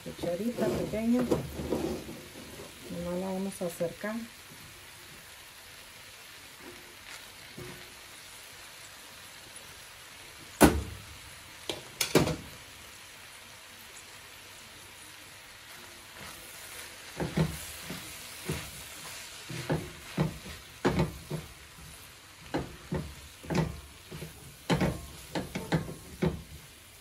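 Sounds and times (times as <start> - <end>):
spoon knocking on metal pot: 24.7 - 26.5.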